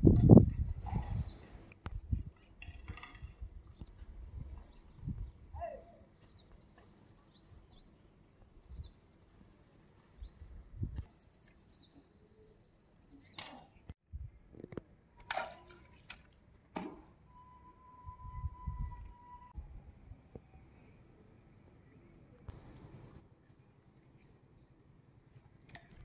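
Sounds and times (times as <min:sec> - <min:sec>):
small birds chirping: 0:00.1 - 0:02.2, 0:03.6 - 0:14.0, 0:21.5 - 0:24.7.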